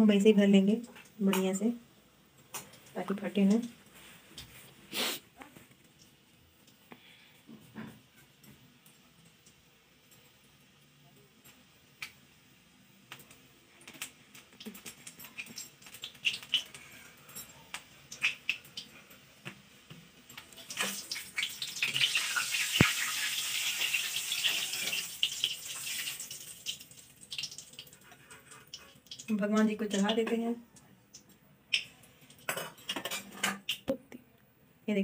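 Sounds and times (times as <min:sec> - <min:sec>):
dough sizzling in hot oil: 0:02.4 - 0:30.3.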